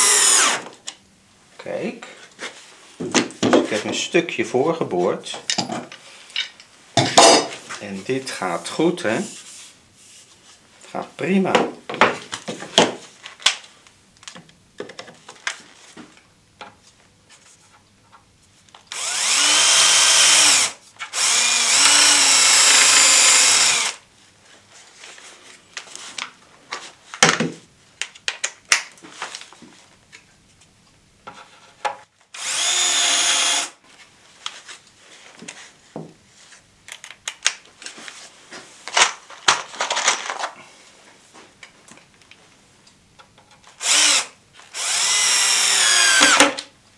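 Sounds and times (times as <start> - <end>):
cordless drill running: 0.0 - 0.7, 18.9 - 24.0, 32.4 - 33.8, 43.8 - 46.5
tool handling clicks and knocks: 5.3 - 7.6, 43.2 - 43.8.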